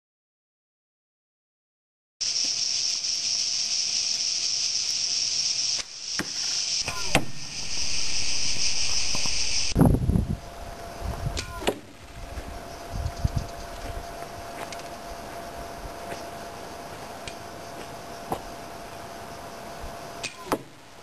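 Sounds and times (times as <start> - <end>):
high insect chorus: 2.2 - 20.7
arrow striking target: 5.8 - 7.6.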